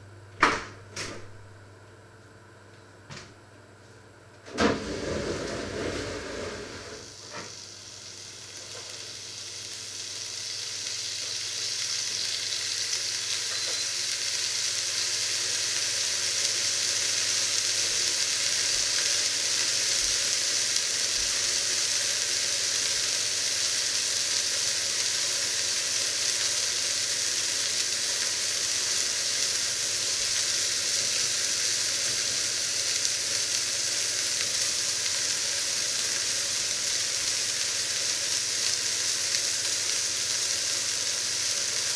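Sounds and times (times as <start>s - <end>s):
meat sizzling in a pan: 5.6s - 41.9s.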